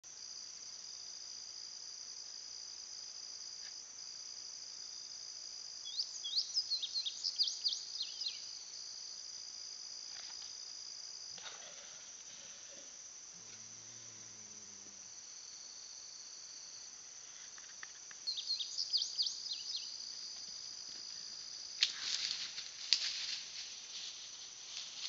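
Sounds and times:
insects trilling: 0:00.1 - 0:25.0
bird chirping: 0:05.9 - 0:08.5, 0:18.2 - 0:20.0.

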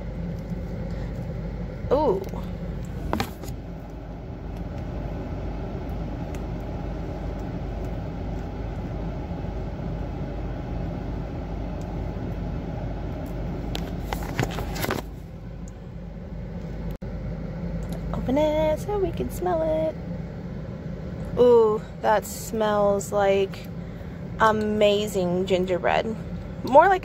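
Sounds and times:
car hum inside cabin: 0:00.0 - 0:27.0.

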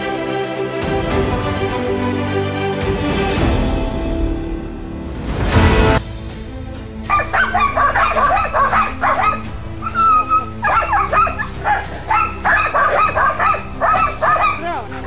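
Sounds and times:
background music: 0:00.0 - 0:15.0
dog barking and yelping: 0:07.1 - 0:14.6.

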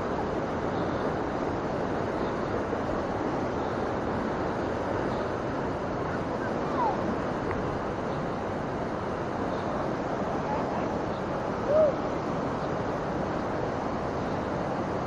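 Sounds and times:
stream water flowing: 0:00.0 - 0:15.0.

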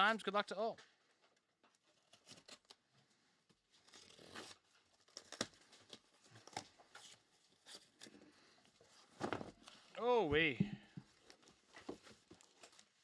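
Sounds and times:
cardboard and tape tearing: 0:01.9 - 0:02.8, 0:03.7 - 0:08.2.

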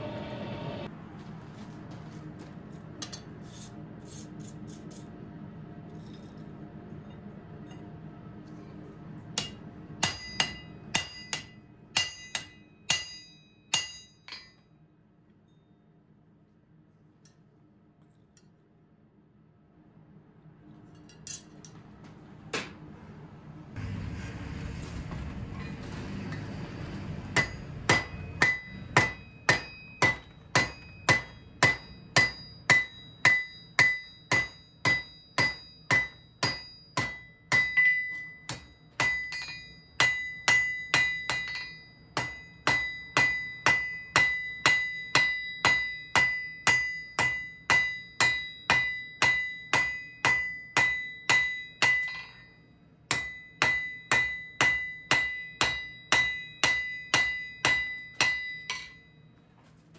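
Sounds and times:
hammer ringing on anvil: 0:09.4 - 0:14.6, 0:27.3 - 0:59.2.

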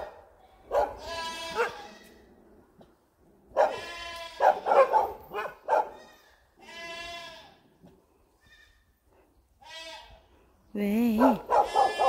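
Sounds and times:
dogs barking: 0:00.0 - 0:01.9, 0:03.5 - 0:06.1, 0:11.2 - 0:12.0.

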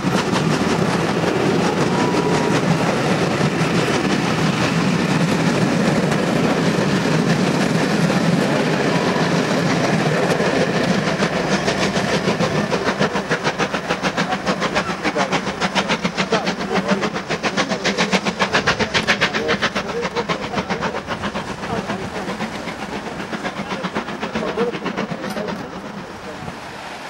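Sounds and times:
steam locomotive fast beat: 0:00.0 - 0:27.0
train coaches rumbling past: 0:00.0 - 0:27.0.

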